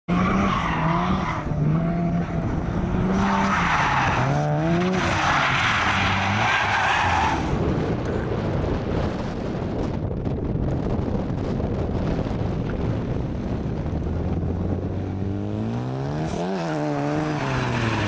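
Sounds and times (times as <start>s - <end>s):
rotary engine revving: 0.1s - 6.7s, 14.3s - 18.0s
tyres skidding and squealing: 0.1s - 8.0s, 16.2s - 18.0s.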